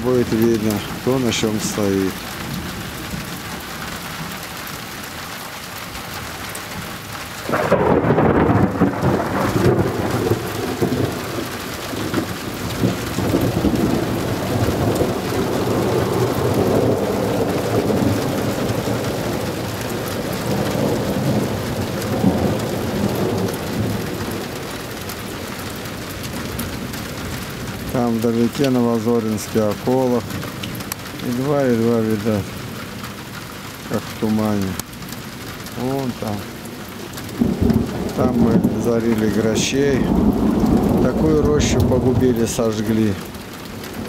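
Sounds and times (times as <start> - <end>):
steady rain: 0.0 - 44.0
rolling thunderclap: 7.4 - 29.6, 36.4 - 44.0.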